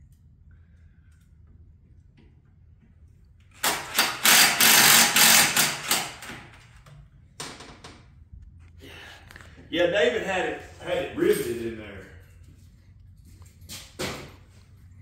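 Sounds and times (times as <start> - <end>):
cordless drill against metal: 3.6 - 6.4.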